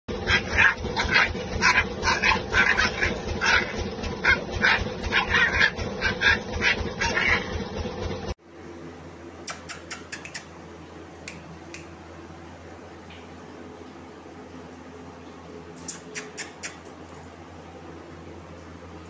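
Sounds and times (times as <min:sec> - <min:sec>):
puppies yipping and whining: 0:00.1 - 0:07.7.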